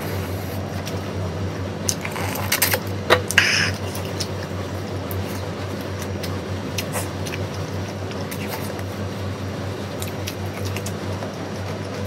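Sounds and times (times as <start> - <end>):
chewing mouth sounds: 5.1 - 9.0.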